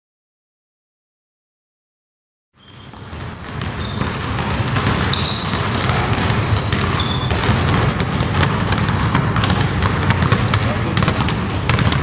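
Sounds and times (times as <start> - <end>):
sneakers squeaking on hardwood: 2.6 - 9.6
basketball bouncing: 2.6 - 12.0.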